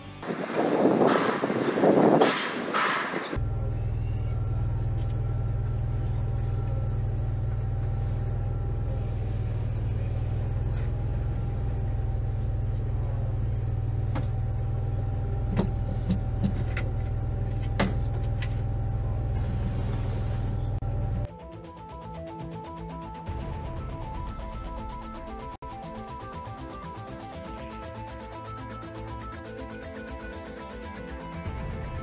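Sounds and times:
machinery humming: 0.0 - 32.0
faint machine whine: 3.4 - 21.3.

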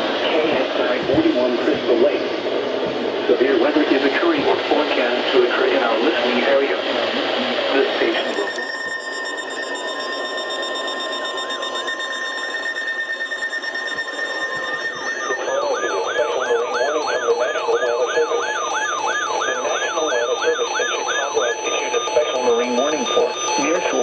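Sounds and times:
faint steady tones: 0.0 - 24.0
radio hiss: 0.1 - 8.5, 15.2 - 24.0
warbling electronic alarm: 8.0 - 24.0.

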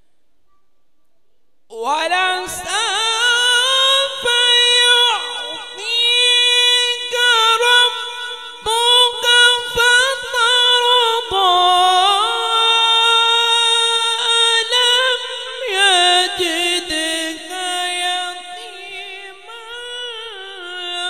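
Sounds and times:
man chanting melodically: 1.7 - 21.0.

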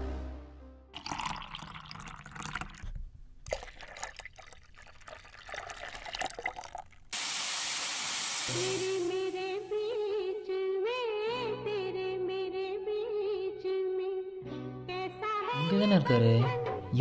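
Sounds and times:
milk pouring into a saucepan: 1.0 - 9.3
steady hiss: 7.1 - 10.2.

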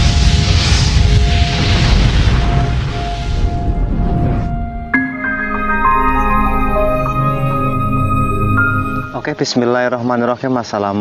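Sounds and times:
loud intro music: 4.8 - 9.4.

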